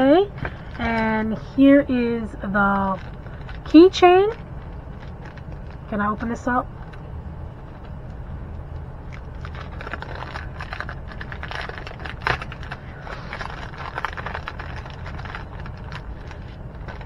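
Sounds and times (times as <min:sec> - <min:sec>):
low steady hum: 0:00.0 - 0:17.0
plastic packaging crinkling: 0:02.4 - 0:07.1, 0:09.0 - 0:17.0.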